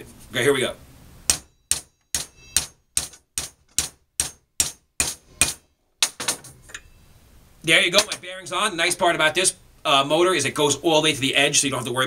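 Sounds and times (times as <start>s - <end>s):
hammer clanking on steel pipe: 1.3s - 6.9s.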